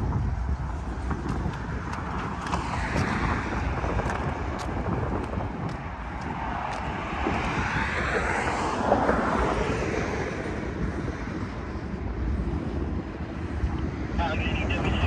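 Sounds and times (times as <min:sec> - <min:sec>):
traffic rumble: 0:00.0 - 0:15.0
vehicle passing by: 0:01.4 - 0:12.6.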